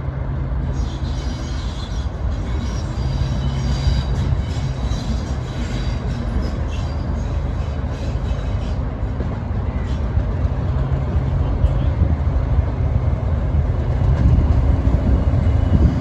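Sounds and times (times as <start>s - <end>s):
diesel locomotive engine rumble: 0.0s - 16.0s.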